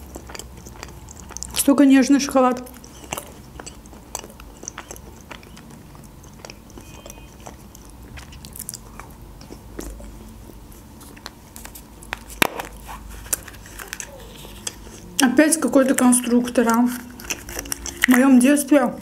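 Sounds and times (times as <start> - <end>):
wet mouth clicks: 0.0 - 1.7, 2.4 - 10.2, 15.9 - 18.4
chewing chocolate: 0.0 - 19.0.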